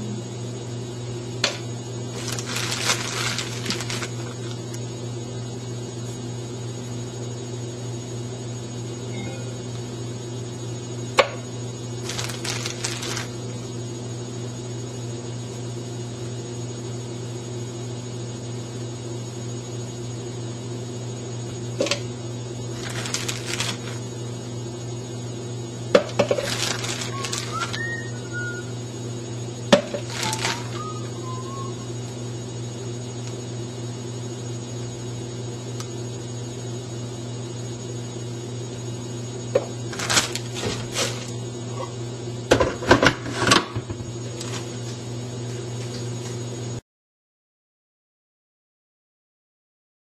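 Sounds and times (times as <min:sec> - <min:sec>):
steady low hum: 0:00.0 - 0:46.8
plastic bag crinkling: 0:02.1 - 0:04.8, 0:12.0 - 0:13.4, 0:22.7 - 0:24.0, 0:26.2 - 0:28.1, 0:29.8 - 0:31.0, 0:39.9 - 0:41.3.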